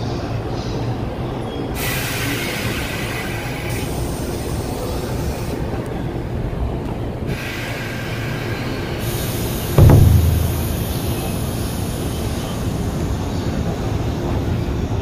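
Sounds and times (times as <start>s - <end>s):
loud low rumble: 9.8s - 11.4s.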